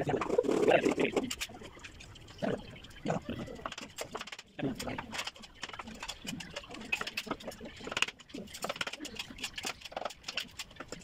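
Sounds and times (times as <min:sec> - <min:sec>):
faint voices: 0:02.4 - 0:03.8.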